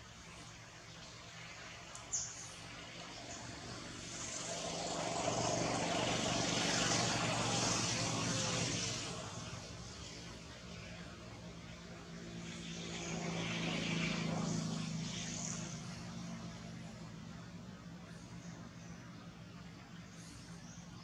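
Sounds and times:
distant engine passing by: 0.0s - 21.0s.

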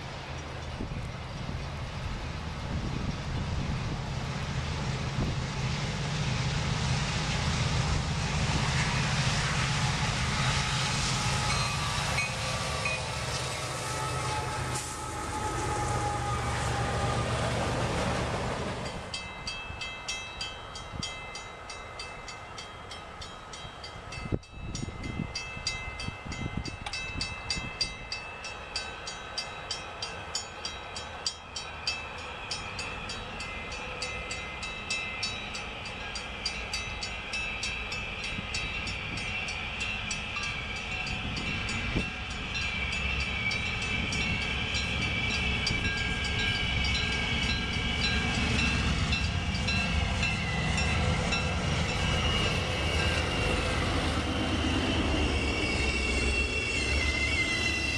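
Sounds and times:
diesel locomotive approaching: 0.0s - 57.9s
grade crossing bells ringing: 11.4s - 14.6s, 18.8s - 57.9s.

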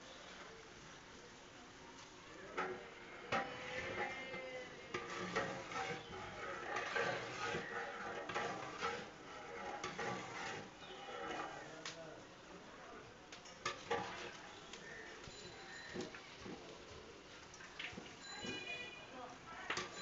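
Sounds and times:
oil and rice sizzling: 0.0s - 20.0s
metal cookware clinking: 2.5s - 11.7s, 13.5s - 14.5s, 15.2s - 16.6s, 17.9s - 19.0s, 19.7s - 20.0s.

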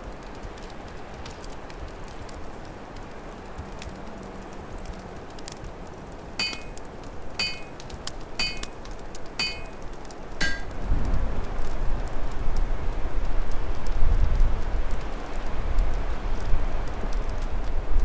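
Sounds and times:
fire crackling: 0.0s - 18.0s
low wind rumble: 0.0s - 18.0s
ringing metallic clinks: 6.4s - 6.8s, 7.4s - 7.8s, 8.4s - 8.7s, 9.4s - 9.8s, 10.4s - 10.7s.

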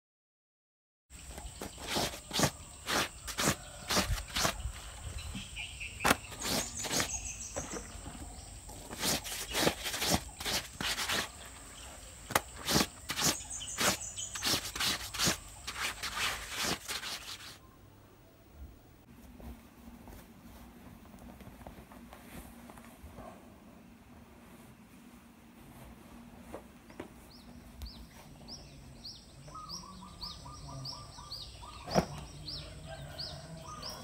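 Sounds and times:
bird chirps: 1.2s - 17.8s, 27.3s - 34.0s
brush scrubbing wet cloth: 1.5s - 4.8s, 6.1s - 7.9s, 8.8s - 17.6s.

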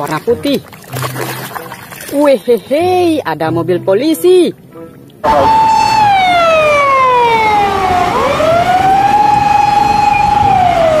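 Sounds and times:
emergency vehicle siren wailing: 5.2s - 11.0s.

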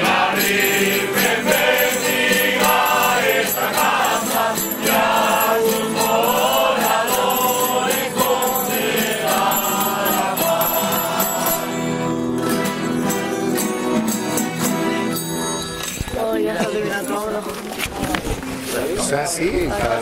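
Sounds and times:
men and women singing together: 0.0s - 12.0s
small bells jingling: 0.0s - 17.3s.

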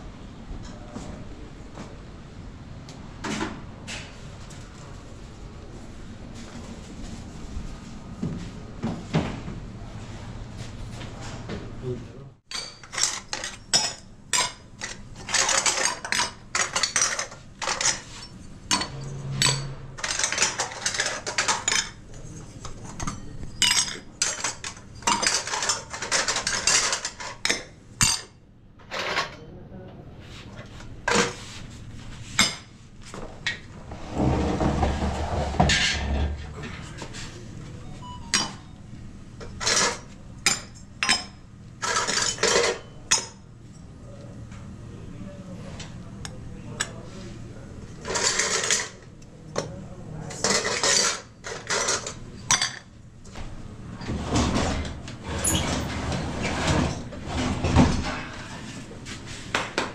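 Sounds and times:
dishes and cutlery clattering: 12.5s - 29.4s, 39.4s - 43.9s, 48.0s - 49.0s, 50.3s - 52.9s.

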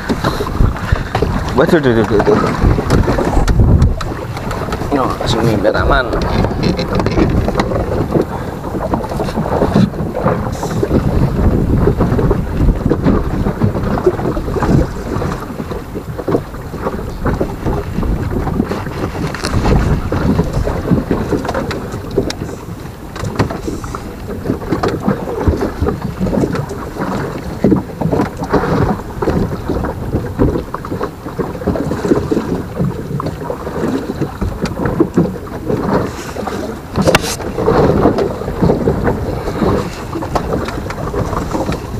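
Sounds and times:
wind rumbling on microphone: 0.0s - 41.9s.

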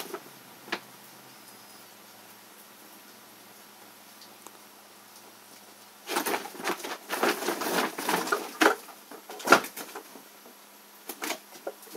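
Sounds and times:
plastic bag rustling and crinkling: 5.6s - 11.9s.

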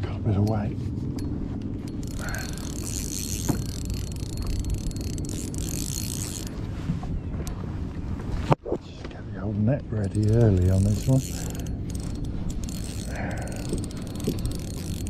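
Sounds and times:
fishing reel winding: 1.9s - 6.5s, 10.0s - 15.0s.

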